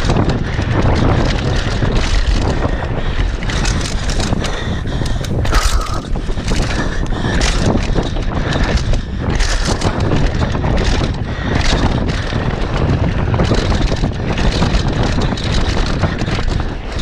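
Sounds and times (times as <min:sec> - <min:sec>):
bike rattling and knocking: 0:00.0 - 0:17.0
tyres rumbling on dirt trail: 0:00.0 - 0:17.0
wind buffeting microphone: 0:00.0 - 0:17.0.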